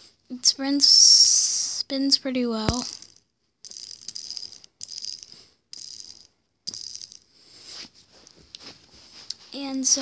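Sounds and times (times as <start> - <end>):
plastic fidget spinner whirring: 2.7 - 7.3.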